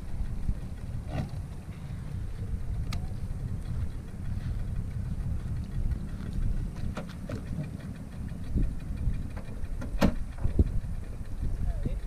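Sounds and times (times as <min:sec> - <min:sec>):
outboard motor idling: 0:00.0 - 0:12.0.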